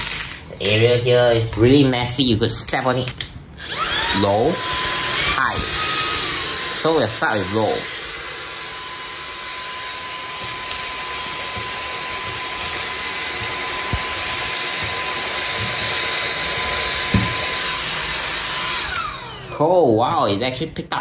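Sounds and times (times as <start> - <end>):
vacuum cleaner whine: 3.6 - 19.8.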